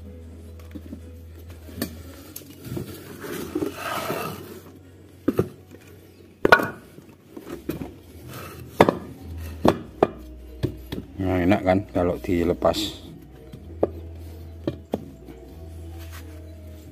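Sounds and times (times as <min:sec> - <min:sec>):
scraping noise: 0:02.6 - 0:04.7.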